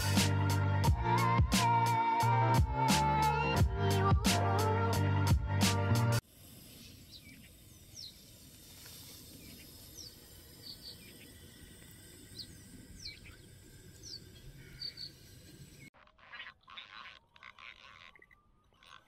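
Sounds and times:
small birds chirping: 0:06.7 - 0:19.0.

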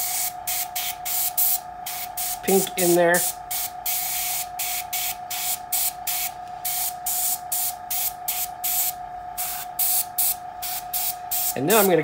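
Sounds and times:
steady hum: 0:00.0 - 0:12.0
airbrush spraying hiss: 0:03.2 - 0:12.0.

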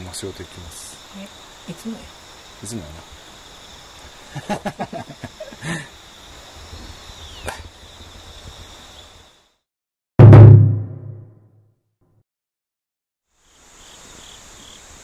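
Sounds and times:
crickets trilling: 0:00.0 - 0:09.6, 0:13.3 - 0:15.0.

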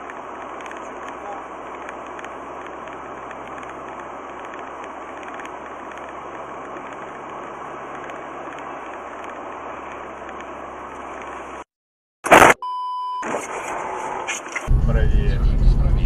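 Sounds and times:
car road and engine noise: 0:00.0 - 0:11.7, 0:13.2 - 0:16.0
low hum: 0:14.7 - 0:16.0.

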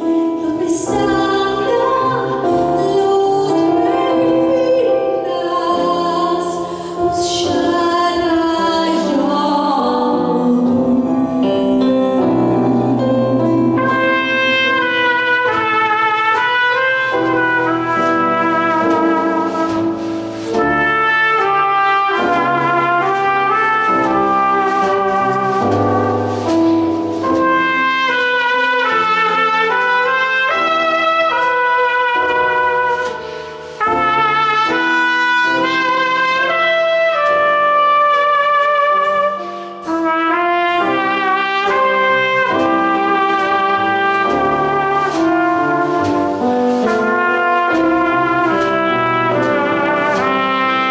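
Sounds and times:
woman singing: 0:00.0 - 0:15.8
piano: 0:00.0 - 0:50.9
trumpet solo: 0:12.4 - 0:50.9
drums: 0:13.8 - 0:30.4.

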